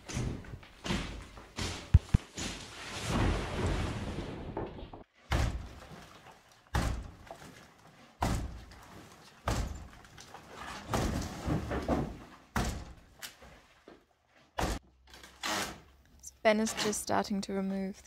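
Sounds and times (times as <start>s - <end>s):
axe blows into wooden wall: 6.7s - 7.2s, 8.2s - 8.7s.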